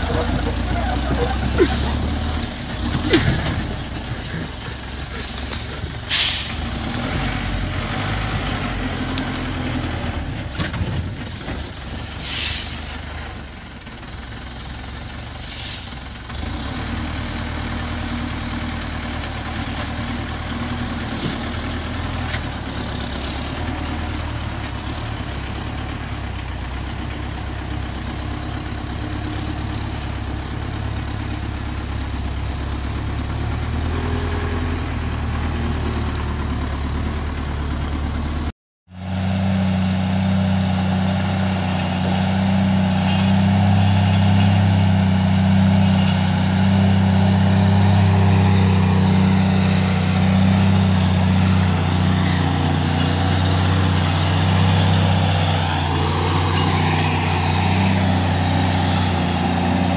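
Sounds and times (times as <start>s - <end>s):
louder engine humming: 29.2s - 59.9s.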